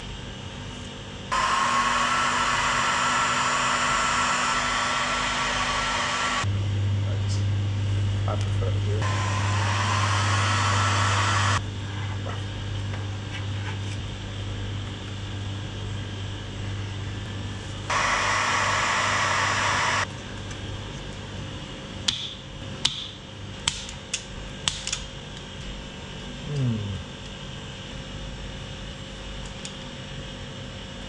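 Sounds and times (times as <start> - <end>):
heat gun blowing: 1.3 - 6.5, 9.0 - 11.6, 17.9 - 20.1.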